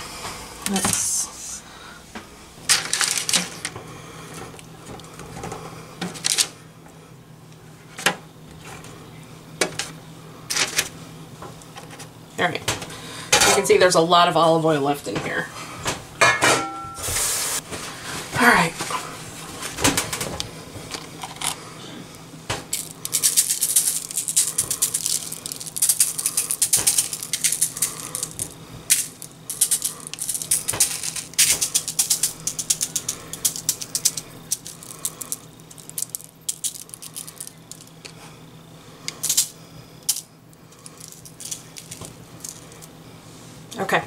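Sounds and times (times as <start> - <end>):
seasoning shaker rattling: 22.7 - 38.1, 39.1 - 43.0.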